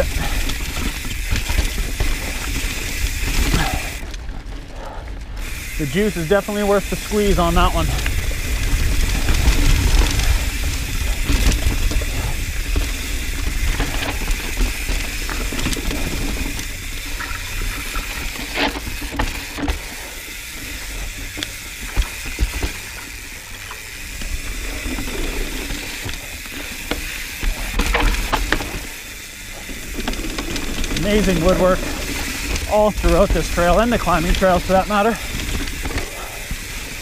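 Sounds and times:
bike knocking and rattling: 0.0s - 37.0s
bike tyres rolling over dirt: 0.0s - 37.0s
freehub ratcheting: 5.4s - 37.0s
wind rumble on microphone: 7.8s - 14.2s.

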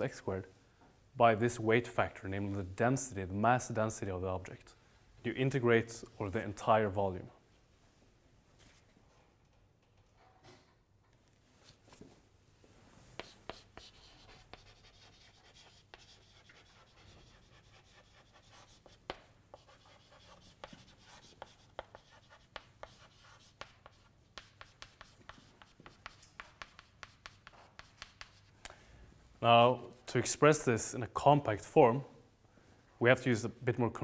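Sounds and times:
chalk scratching on blackboard: 13.2s - 28.6s
chalk tapping on blackboard: 13.2s - 28.6s.

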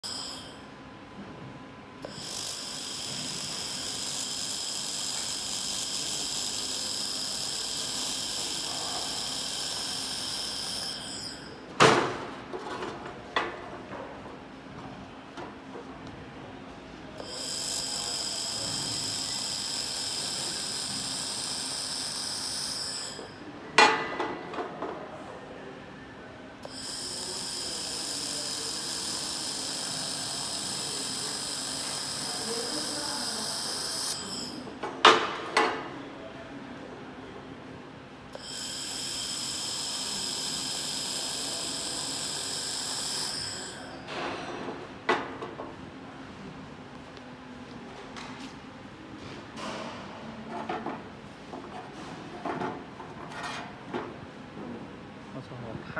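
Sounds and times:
laser welder hissing and whining: 0.0s - 0.6s, 2.0s - 11.5s, 17.2s - 23.3s, 26.6s - 34.6s, 38.3s - 44.0s.

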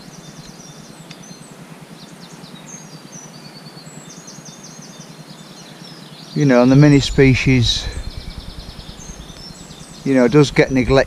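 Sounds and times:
songbirds chirping and trilling: 0.0s - 11.0s.

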